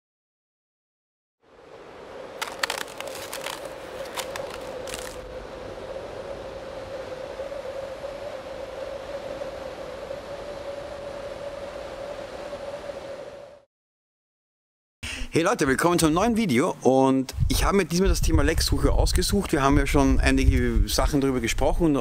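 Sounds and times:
steady hiss: 1.5 - 13.6
ice crackling: 2.3 - 5.3.

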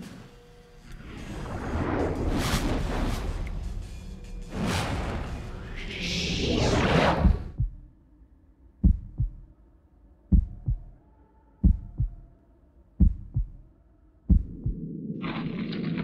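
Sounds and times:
heartbeat thumps: 7.2 - 7.9, 8.8 - 9.5, 10.3 - 11.0, 11.6 - 12.3, 13.0 - 13.7, 14.3 - 14.9.

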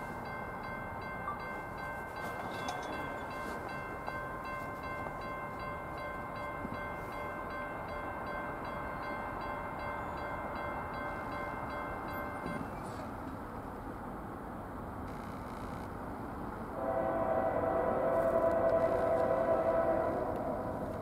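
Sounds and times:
high ringing tones: 0.0 - 13.1
train rumble: 0.0 - 21.0.

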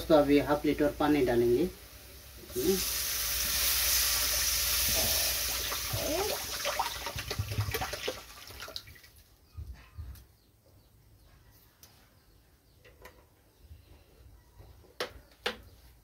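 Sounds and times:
water splashing into hot oil: 1.8 - 9.2.

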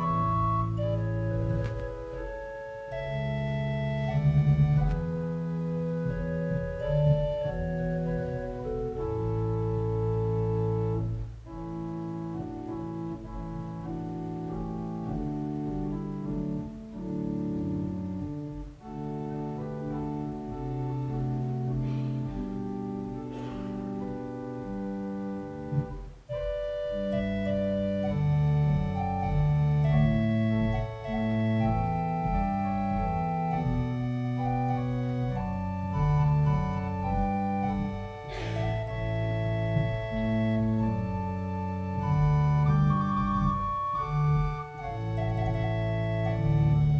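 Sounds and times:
organ playing slow chords: 0.0 - 46.9.

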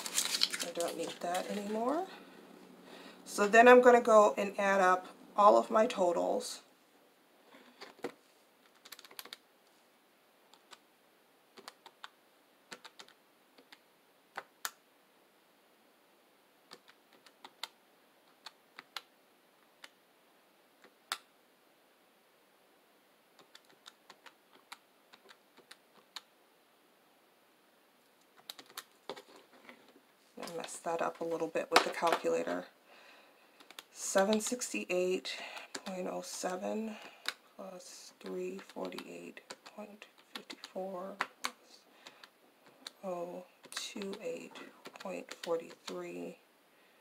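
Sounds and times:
calculator keys clicking: 8.7 - 9.4, 12.7 - 13.8.

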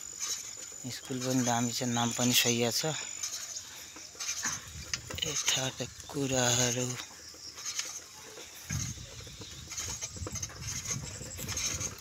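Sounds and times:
footsteps: 0.0 - 12.0
low rumble with irregular knocks: 0.3 - 6.2, 8.4 - 12.0.

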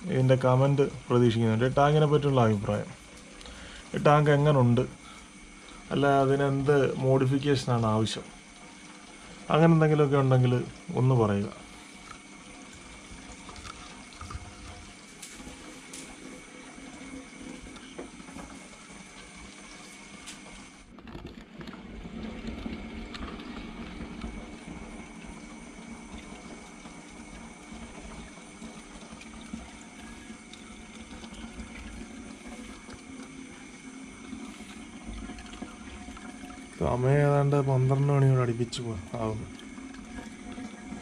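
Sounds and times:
water trickling in aquarium: 0.0 - 41.0.

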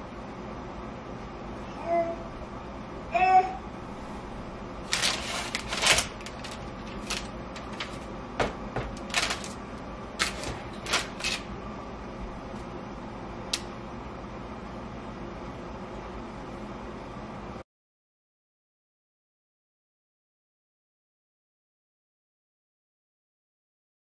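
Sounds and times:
kitchen knocks and scrapes: 8.4 - 9.1.

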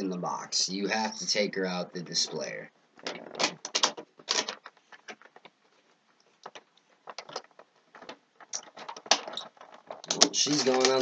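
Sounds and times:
cardboard packaging clicks and crinkles: 3.0 - 11.0.

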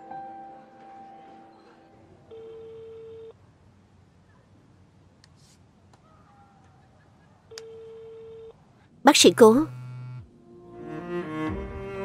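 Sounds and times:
telephone ringback beep: 2.3 - 3.3.

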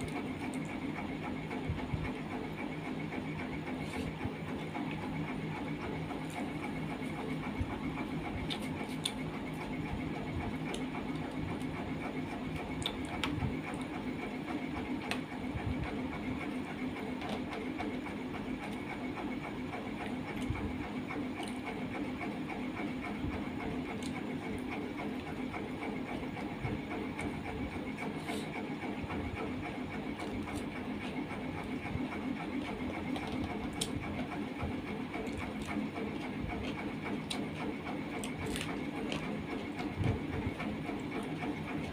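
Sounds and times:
steady machine hum: 0.0 - 41.9
chewing and mouth clicks: 8.4 - 9.6, 35.2 - 39.4.

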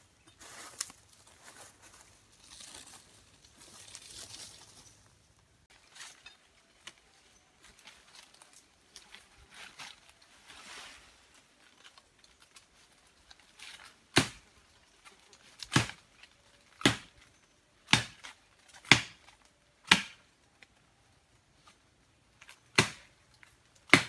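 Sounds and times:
rustling through undergrowth: 0.0 - 23.9
chopping strikes into wood: 14.1 - 14.4, 15.7 - 16.0, 16.8 - 17.1, 17.8 - 19.2, 19.8 - 20.2, 22.7 - 23.1.

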